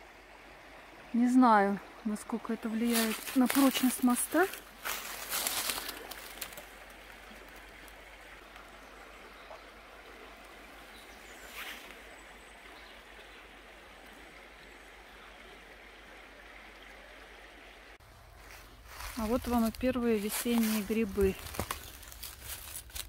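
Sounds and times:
river water flowing: 0.0 - 23.0
rustling and crackling: 2.9 - 8.0, 18.4 - 23.0.

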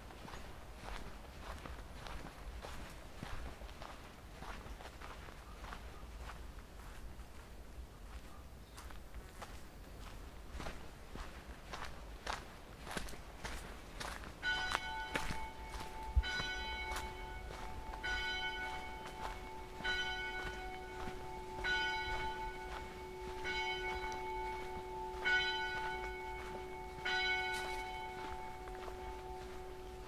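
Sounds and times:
church bell tolling: 14.4 - 30.0.

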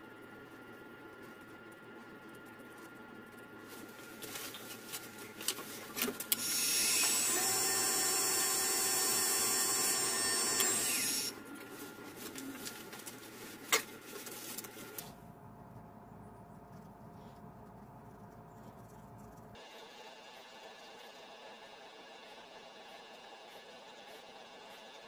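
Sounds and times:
wood shavings rubbing spinning wood: 2.6 - 15.0
wood lathe running: 6.3 - 11.4.

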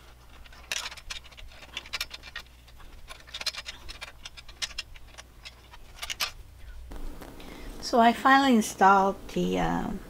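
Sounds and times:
allen key metal clicks: 0.0 - 6.4.

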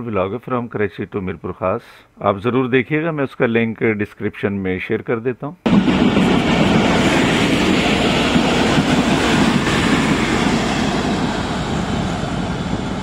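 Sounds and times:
train coaches rolling on rails: 5.7 - 13.0.

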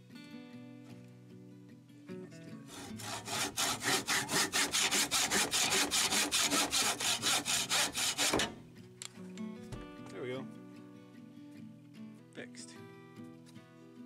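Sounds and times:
handsaw cutting wood: 2.7 - 8.6.

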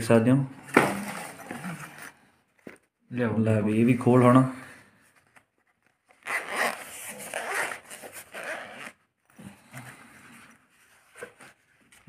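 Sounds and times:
zipper unzipping: 6.2 - 9.5.

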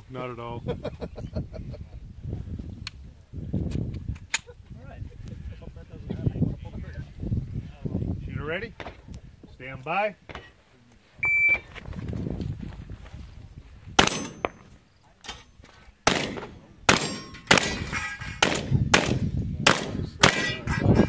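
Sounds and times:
shotgun shots: 14.0 - 14.7, 16.0 - 20.8
steel targets ringing: 14.0 - 14.7, 16.9 - 18.4, 20.2 - 20.7.

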